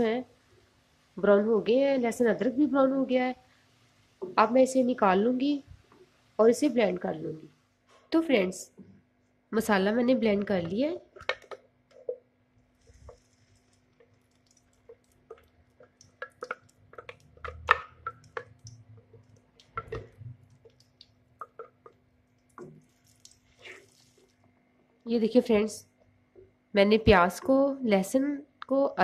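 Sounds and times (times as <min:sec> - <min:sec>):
paste plopping into pan: 0:10.6 - 0:24.4.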